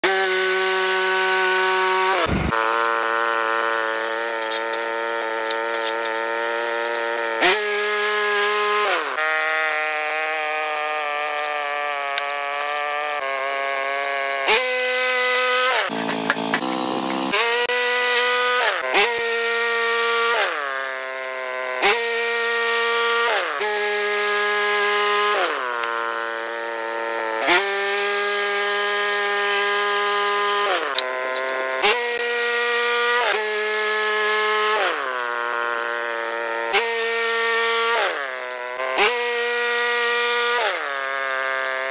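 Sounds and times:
band blade cutting lumber: 0.0 - 41.9
gasoline engine running hard: 1.8 - 2.8.

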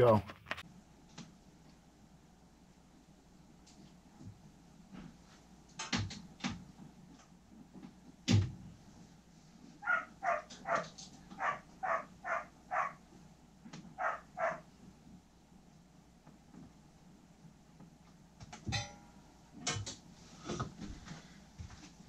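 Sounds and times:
dog barking: 9.8 - 13.0, 14.0 - 14.7.

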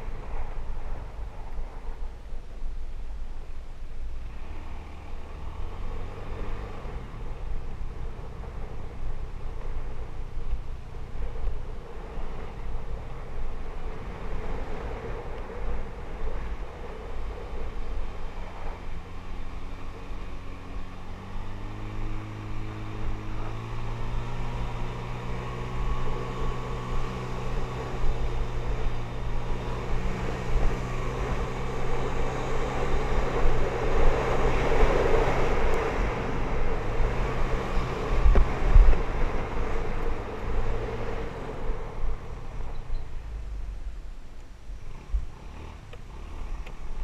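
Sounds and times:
wind buffeting microphone: 7.5 - 42.7.

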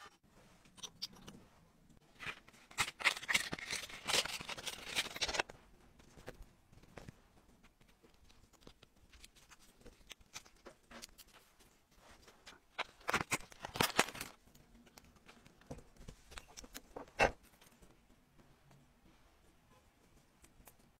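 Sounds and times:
plastic packaging crinkling: 2.2 - 5.5, 12.7 - 14.4.

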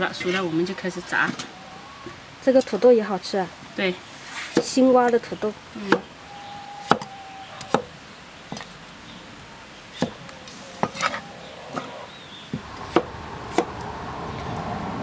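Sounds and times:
cleaver chopping on wooden board: 6.8 - 7.1
low rumbling noise: 9.0 - 15.0.

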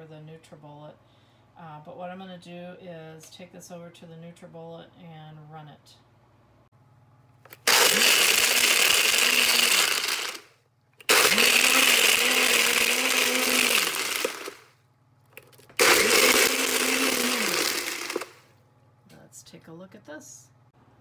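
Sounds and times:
blender motor spinning: 7.5 - 14.7, 15.8 - 18.4.

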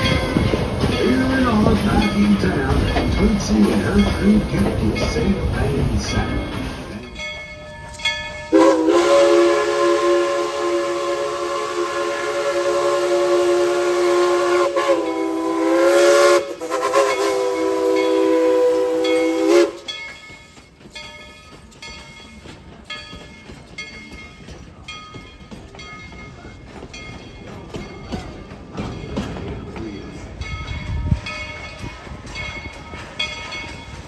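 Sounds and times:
train knocking and clanking: 0.0 - 34.0
steam locomotive whistle: 8.5 - 19.9.

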